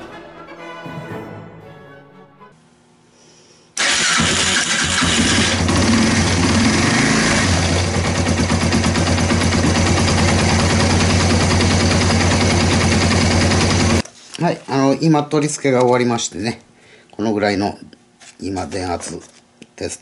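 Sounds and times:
motorcycle engine starting and running: 0:03.8 - 0:14.0.

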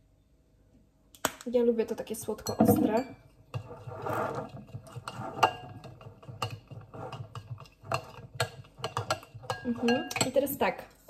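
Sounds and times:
metal spoon scraping ceramic bowl: 0:02.3 - 0:10.7.

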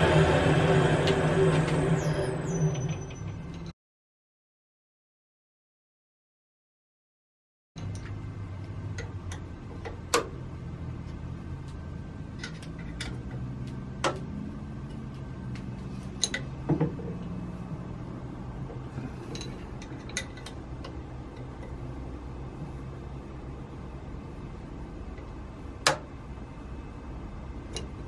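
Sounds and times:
metal lathe humming: 0:00.0 - 0:02.5.

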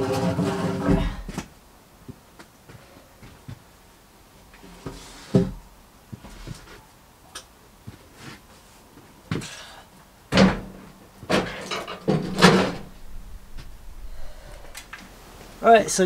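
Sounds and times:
knocks and clunks with hollow ring: 0:10.3 - 0:14.8.

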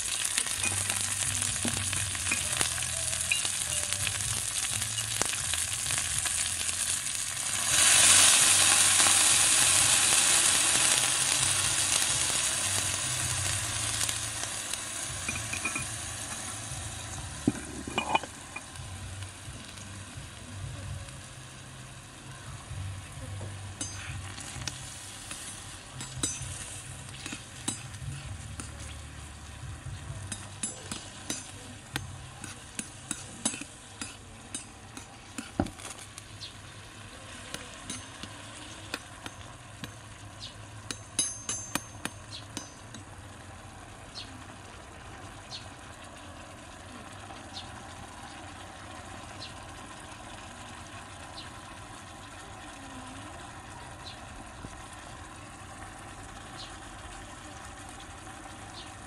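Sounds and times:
chicken and peppers sizzling in wok: 0:00.0 - 0:59.0
metal spoon scraping pan: 0:17.4 - 0:18.4.

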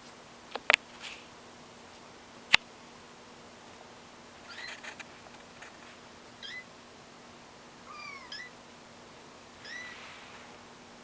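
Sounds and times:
kittens mewing: 0:07.9 - 0:08.6, 0:09.6 - 0:10.0.

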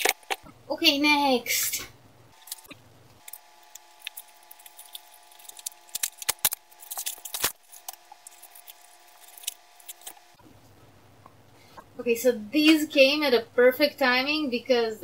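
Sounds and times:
scissors snipping plastic: 0:02.4 - 0:10.2
plastic crinkling: 0:02.4 - 0:10.4.

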